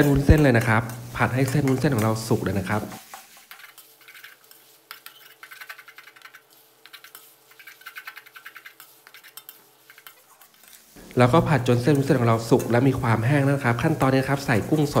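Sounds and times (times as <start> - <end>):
metal spatula scraping a wok: 0.0 - 11.0.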